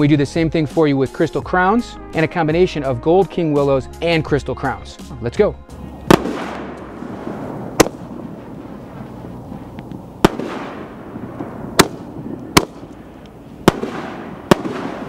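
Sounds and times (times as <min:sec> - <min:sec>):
firework shell bangs: 0:06.0 - 0:09.0, 0:10.2 - 0:15.0.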